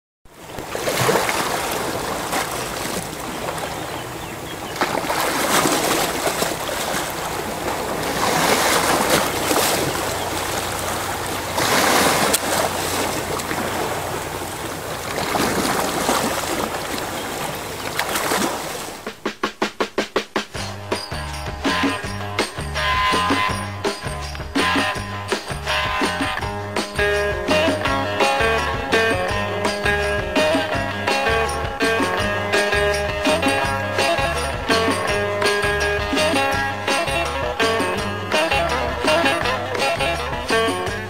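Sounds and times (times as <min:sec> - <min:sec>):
waves washing on shore: 0:00.3 - 0:19.2.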